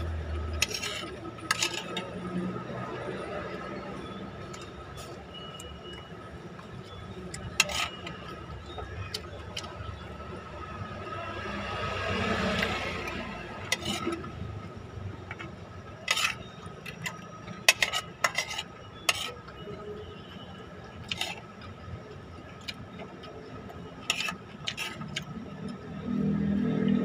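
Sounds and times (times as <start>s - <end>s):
metal spoon scraping a plate: 0.2s - 5.2s, 6.7s - 10.0s, 12.6s - 14.7s, 15.3s - 19.8s, 20.9s - 21.7s, 23.9s - 25.4s.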